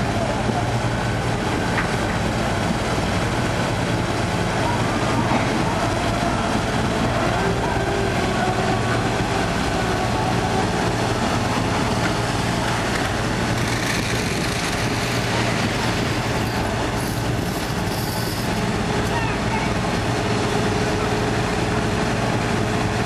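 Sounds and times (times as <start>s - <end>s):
boat engines running: 0.0s - 23.0s
crane winch running: 0.0s - 23.0s
machinery humming: 0.0s - 23.0s
fish and seawater pouring: 12.2s - 18.4s.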